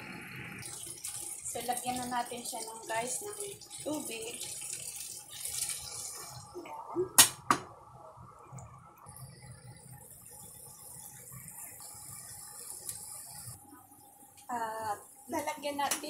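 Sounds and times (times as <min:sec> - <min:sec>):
liquid simmering with hiss: 0:00.0 - 0:16.0
water poured into frying pan: 0:00.3 - 0:06.6.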